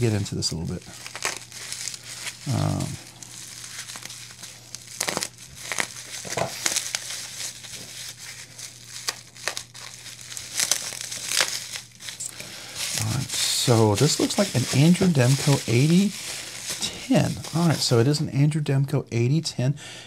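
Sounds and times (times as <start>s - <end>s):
packaging crinkling: 0.0s - 18.2s.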